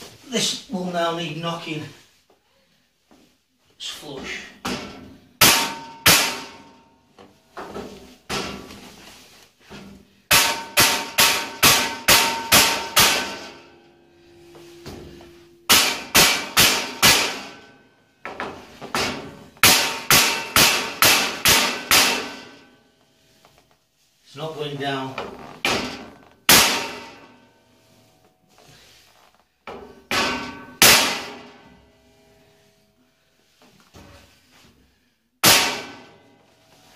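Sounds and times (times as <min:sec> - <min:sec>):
hammer striking steel: 0:05.4 - 0:06.8, 0:10.3 - 0:13.7, 0:14.8 - 0:17.7, 0:19.0 - 0:22.7, 0:25.7 - 0:27.3, 0:30.1 - 0:31.6, 0:35.4 - 0:36.2.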